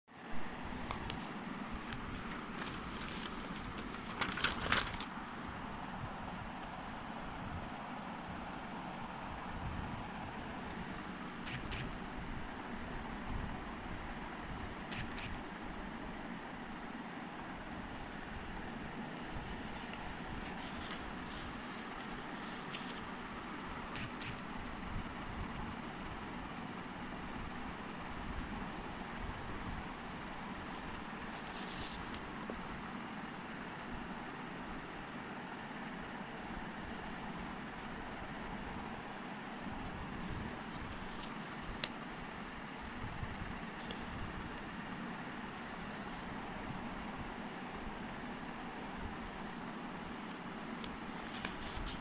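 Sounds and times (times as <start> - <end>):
steady background hiss: 0.1 - 52.0
paper crinkling: 0.6 - 5.4, 17.9 - 23.3, 30.8 - 32.8, 36.7 - 38.1, 39.6 - 41.9, 50.2 - 52.0
page flipping rustle: 0.6 - 5.5, 10.4 - 12.0, 14.9 - 15.4, 17.9 - 23.4, 24.0 - 24.4, 30.7 - 32.8, 36.7 - 38.5, 39.6 - 42.0, 43.7 - 44.2, 45.4 - 46.3, 50.2 - 52.0.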